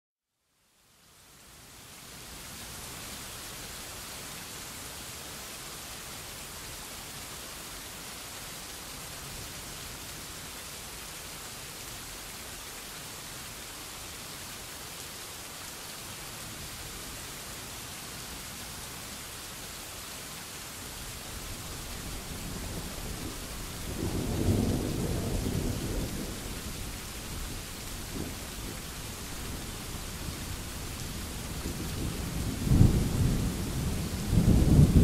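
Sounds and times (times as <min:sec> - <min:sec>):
rain falling and splashing: 0:00.8 - 0:35.0
thunder rumbling: 0:22.2 - 0:29.6, 0:30.3 - 0:35.0.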